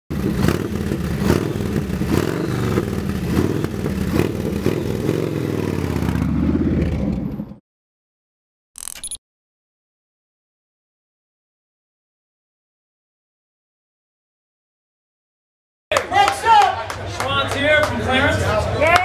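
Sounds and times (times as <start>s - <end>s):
motorcycle engine revving: 0.1s - 7.6s.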